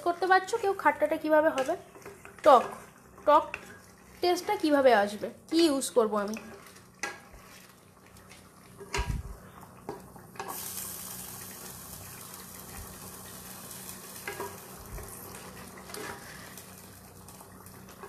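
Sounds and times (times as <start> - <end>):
spatula scraping pan: 0.0 - 5.2, 6.1 - 9.0, 14.2 - 16.6
dal sizzling: 0.0 - 18.0.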